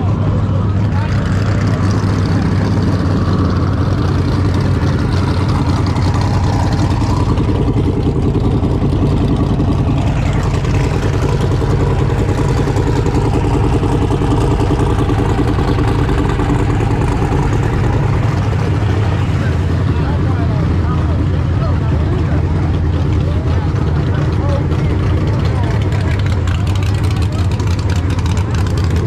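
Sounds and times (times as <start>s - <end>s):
car engine idling: 0.0s - 29.0s.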